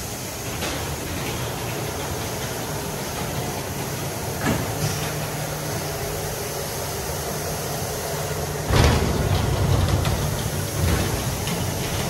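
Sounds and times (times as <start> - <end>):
car wash gantry humming: 0.0 - 12.0
mechanical clunk: 8.6 - 12.0.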